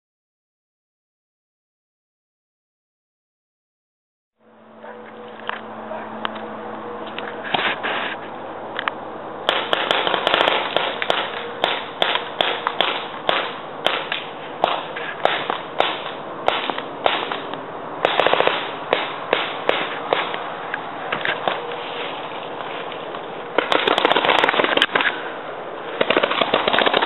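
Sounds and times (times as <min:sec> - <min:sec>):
paintball guns firing: 0:09.4 - 0:20.5, 0:23.5 - 0:25.2, 0:25.9 - 0:27.0.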